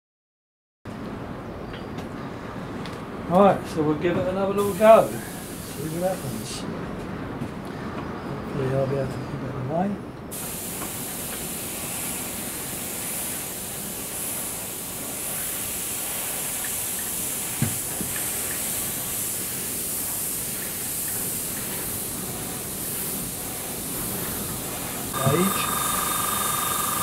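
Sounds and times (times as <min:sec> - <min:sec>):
airbrush hissing: 0:04.6 - 0:06.5, 0:10.3 - 0:27.0.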